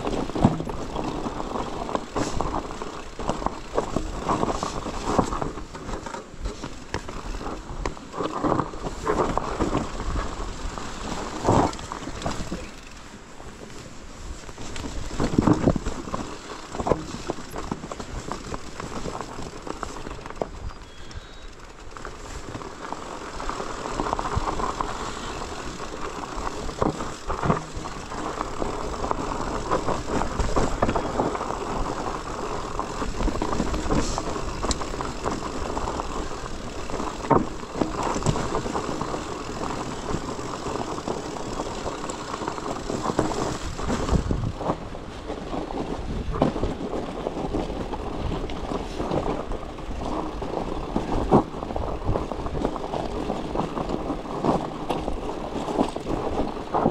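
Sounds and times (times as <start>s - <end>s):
bicycle rattles and knocks: 0.0s - 56.9s
bicycle tyre and drivetrain noise: 0.0s - 56.9s
wind on microphone: 23.6s - 56.9s.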